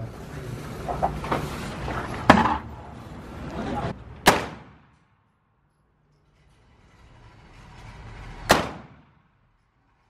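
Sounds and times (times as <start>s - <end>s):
pistol shot: 4.2s - 5.0s, 8.5s - 9.1s.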